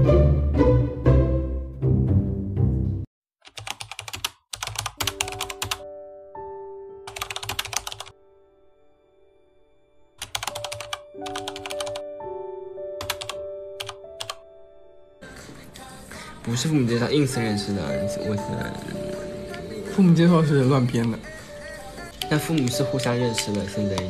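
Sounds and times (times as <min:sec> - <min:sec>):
keyboard typing clicks: 0:03.4 - 0:05.8, 0:07.1 - 0:08.1, 0:10.2 - 0:12.0, 0:13.0 - 0:14.4
soft background music: 0:04.6 - 0:24.0.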